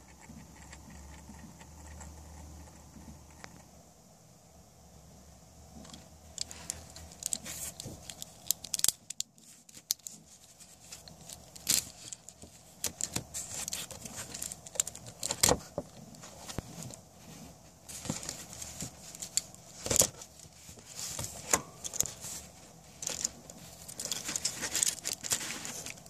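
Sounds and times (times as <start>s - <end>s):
plastic parts clicking and rattling: 5.8s - 10.2s, 10.8s - 17.0s, 17.9s - 22.2s, 22.9s - 26.0s.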